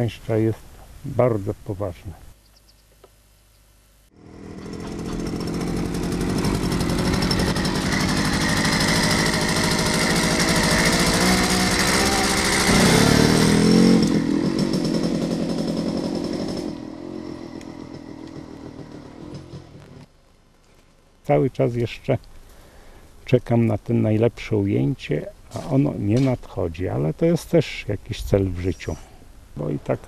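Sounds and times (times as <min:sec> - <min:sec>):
motorcycle engine riding: 0:04.1 - 0:20.1.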